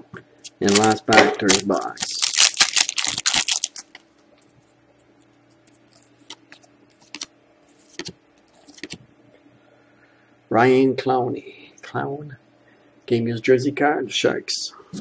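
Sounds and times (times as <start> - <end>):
cards clicking and rustling: 0.5 - 4.0, 5.7 - 9.0
foil pack tearing and crinkling: 0.6 - 4.0.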